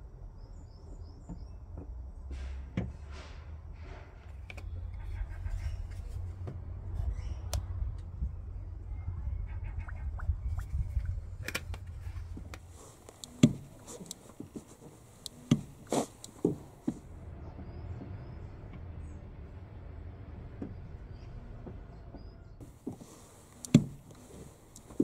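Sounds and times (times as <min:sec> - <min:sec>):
clutch pedal clicks and knocks: 0:12.5 - 0:17.0, 0:22.6 - 0:25.0.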